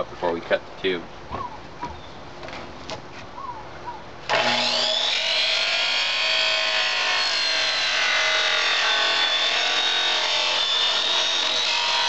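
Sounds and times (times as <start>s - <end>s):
chop saw motor whine: 4.3s - 12.0s
saw blade cutting wood: 4.3s - 12.0s.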